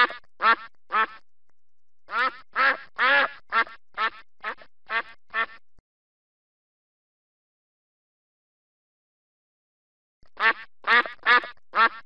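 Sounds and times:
duck quacking: 0.0 - 1.2, 2.1 - 5.6, 10.4 - 12.0.

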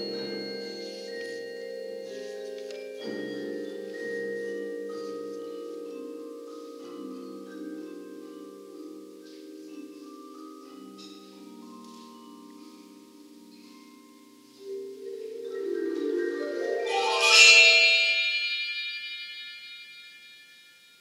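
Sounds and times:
marimbas and vibraphones playing: 0.0 - 21.0.

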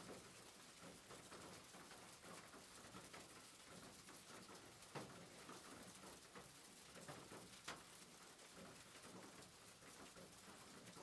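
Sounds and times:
rain pattering: 0.0 - 11.0.

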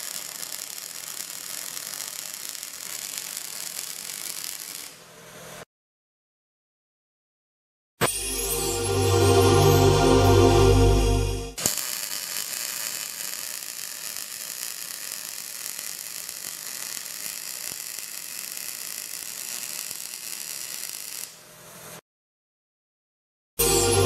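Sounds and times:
welding arc crackling: 0.0 - 5.0, 11.6 - 21.4
welding arc striking snap: 0.0 - 5.0, 11.6 - 21.4.

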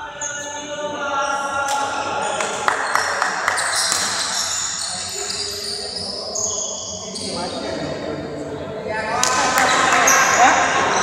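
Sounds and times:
shoes squeaking on court floor: 2.8 - 7.8.

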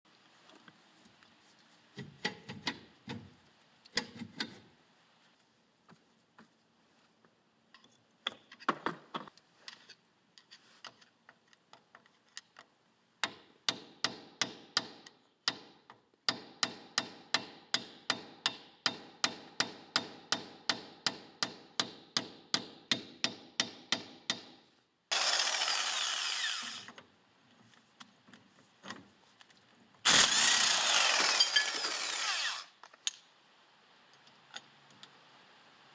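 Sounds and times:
impact wrench bursts: 25.1 - 26.9, 30.0 - 32.8.

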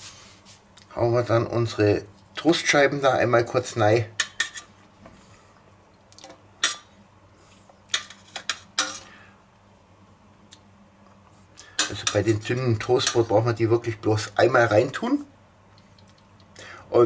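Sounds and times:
metal tongs clinking on steel bowl: 11.8 - 12.3.

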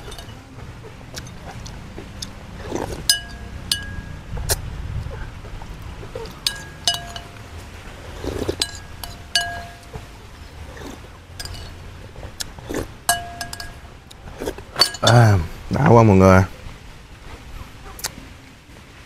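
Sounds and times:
metal spoon clinking ceramic bowl: 0.0 - 0.5, 2.2 - 4.2, 6.2 - 7.6, 8.4 - 10.2, 10.8 - 11.8, 13.1 - 13.9, 14.7 - 15.3.

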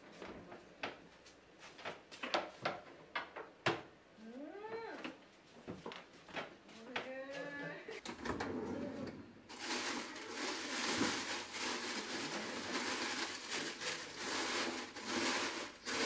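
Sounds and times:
rustling in vegetable drawer: 9.5 - 16.0.

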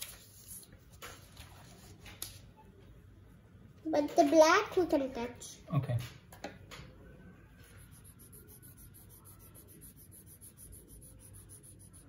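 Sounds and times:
pens scratching on paper: 7.6 - 12.0.

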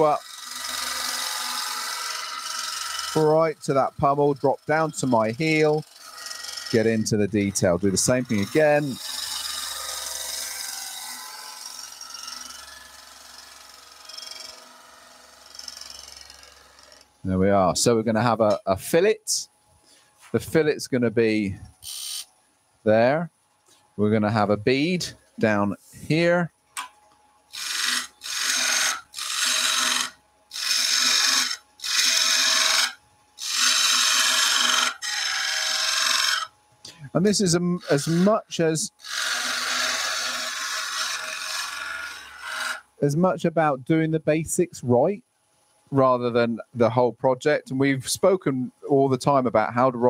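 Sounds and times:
chisel shaving wood on a lathe: 0.0 - 17.0, 27.5 - 36.5, 37.4 - 38.3, 39.0 - 42.9
lathe humming: 0.0 - 17.6, 27.5 - 36.9, 37.5 - 43.0
lathe tool hissing cuts into wood: 27.6 - 36.5.

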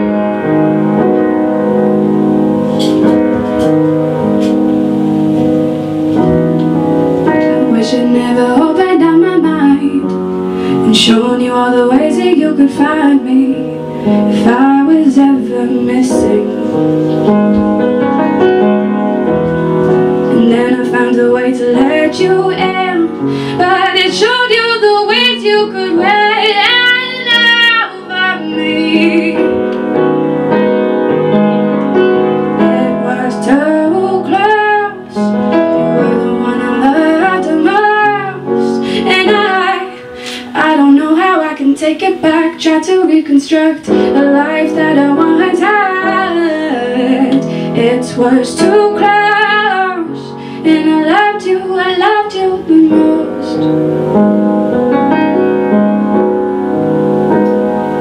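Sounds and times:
upright piano: 0.0 - 58.0
woman singing slow song: 7.3 - 16.9, 20.2 - 29.8, 32.6 - 53.8.

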